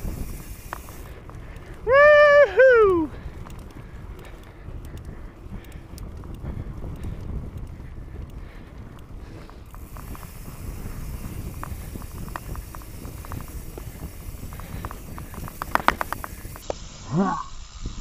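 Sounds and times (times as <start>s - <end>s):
bike frame and chain rattling: 0.0s - 18.0s
wind on microphone: 0.0s - 18.0s
sharp clacks: 9.5s - 16.8s.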